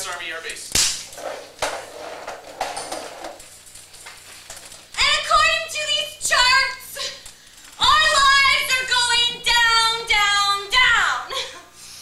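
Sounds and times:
indistinct room noise: 0.0 - 12.0.

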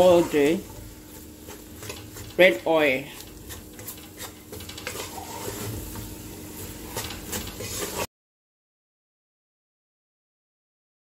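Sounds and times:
spoon scraping metal pot: 0.0 - 2.4, 3.1 - 6.1, 6.8 - 8.1
frying hiss: 0.0 - 8.1.

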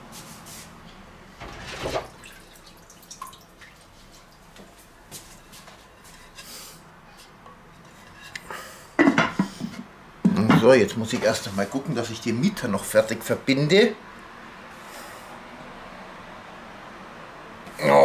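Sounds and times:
faint kitchen noises: 0.0 - 12.2
water dripping: 2.0 - 4.5.

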